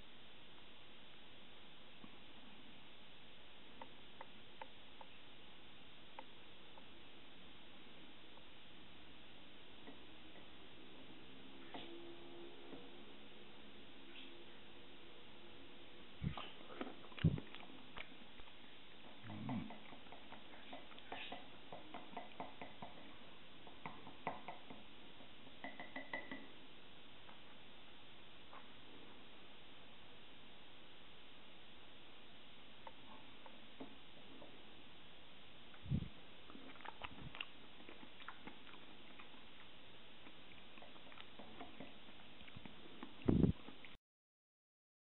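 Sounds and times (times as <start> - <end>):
steady low hiss: 0.0 - 44.0
wet mouth chewing clicks: 16.3 - 18.5, 36.5 - 44.0.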